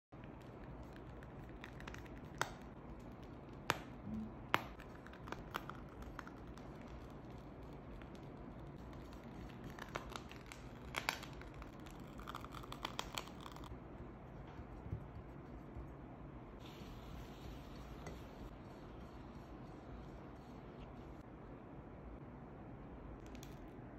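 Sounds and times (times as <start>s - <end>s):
small crackles: 0.2s - 3.9s, 4.7s - 13.8s
plastic piping bag crinkling: 4.7s - 13.7s.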